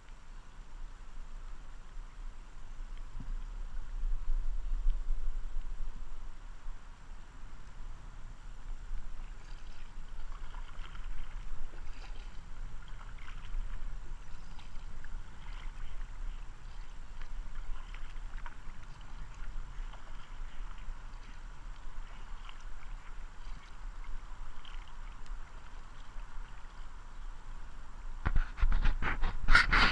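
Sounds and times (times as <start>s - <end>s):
paddle splashing water: 0.0s - 29.9s
steady low rumble: 0.9s - 29.0s.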